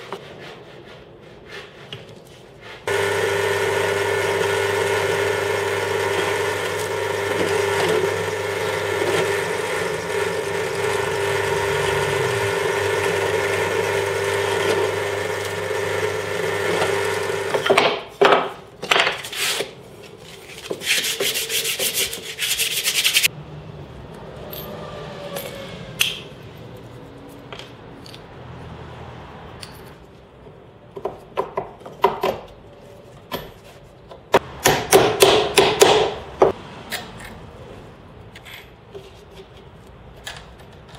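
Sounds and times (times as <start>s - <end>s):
drill bit boring into wood: 2.9s - 17.6s
drill press motor humming: 2.9s - 17.6s.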